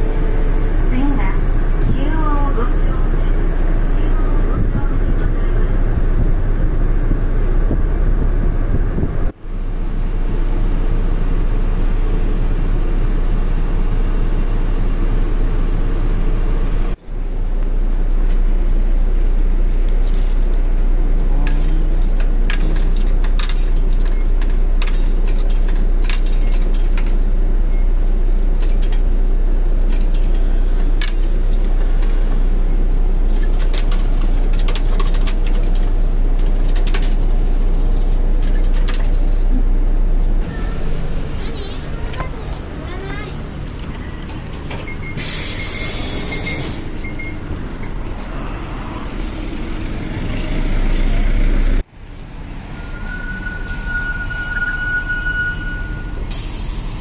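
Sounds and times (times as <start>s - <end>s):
bus engine and road rumble: 0.0s - 57.0s
metallic rattles and clicks: 19.7s - 32.4s, 33.0s - 39.6s.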